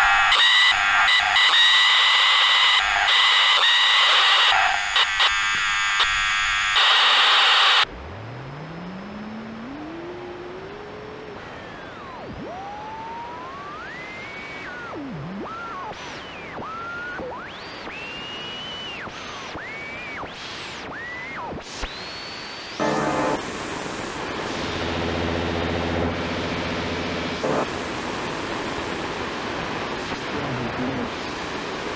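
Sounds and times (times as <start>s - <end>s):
radio static hiss: 0.0s - 7.9s, 19.3s - 31.9s
low rising tone: 7.9s - 13.9s
whistling tones sliding in pitch: 17.9s - 19.9s.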